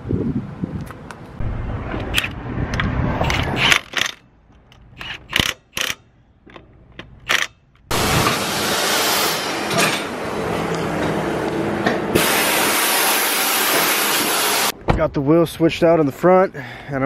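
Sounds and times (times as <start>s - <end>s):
lug nuts clinking on metal: 3.2s - 7.9s
loud steady hiss: 7.9s - 10.0s, 12.1s - 14.7s.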